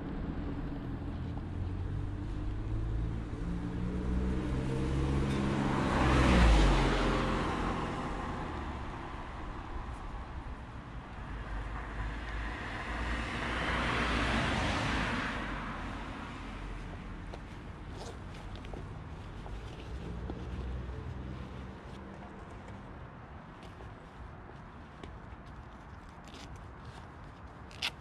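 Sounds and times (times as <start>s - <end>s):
vehicle engine passing by: 0.0s - 9.0s
road noise: 0.0s - 28.0s.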